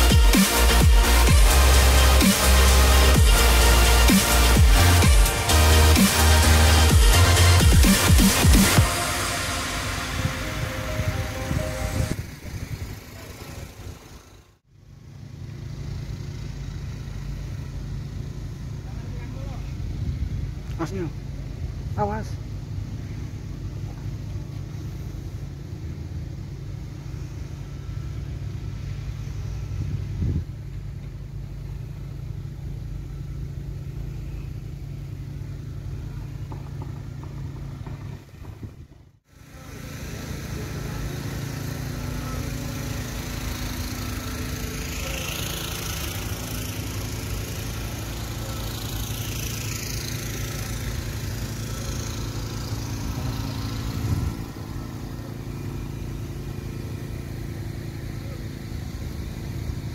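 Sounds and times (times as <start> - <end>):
hiss: 0.0 - 14.3, 39.3 - 57.8
vehicle engine hum: 0.0 - 59.9.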